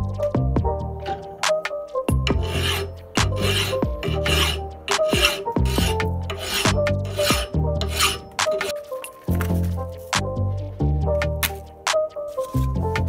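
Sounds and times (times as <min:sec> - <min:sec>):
background music: 0:00.0 - 0:13.0
file rasping on steel: 0:02.1 - 0:09.1.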